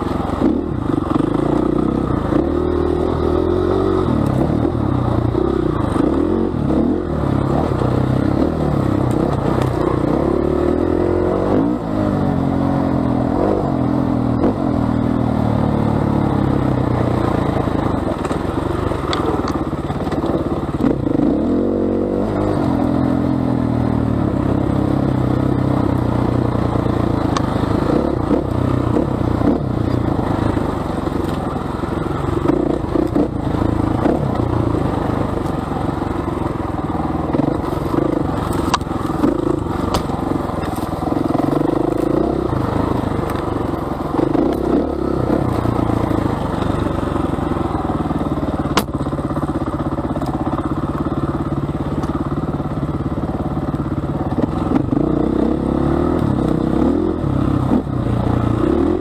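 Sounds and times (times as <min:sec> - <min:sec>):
motorbike engine revving: 0:00.0 - 0:59.0
bike rattling over rough ground: 0:14.2 - 0:21.6, 0:22.2 - 0:55.0.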